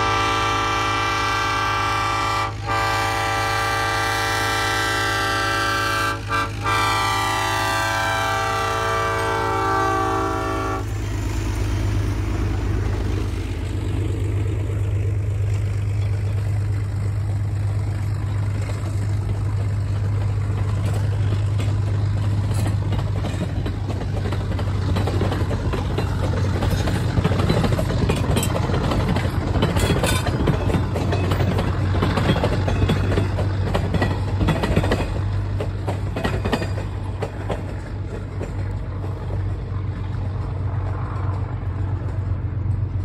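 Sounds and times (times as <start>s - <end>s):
locomotive horn chord: 0.0s - 11.0s
low rumble of train running: 0.0s - 43.0s.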